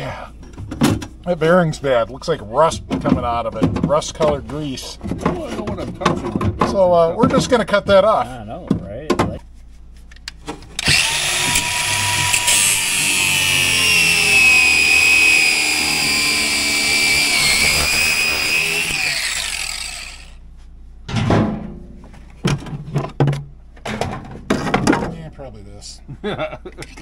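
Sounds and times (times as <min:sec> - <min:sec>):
angle grinder cutting steel: 0:10.8 - 0:20.4.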